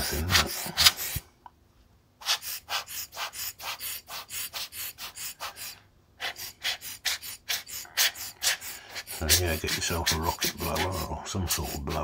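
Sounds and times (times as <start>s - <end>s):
air blower puffing: 8.4s - 12.0s.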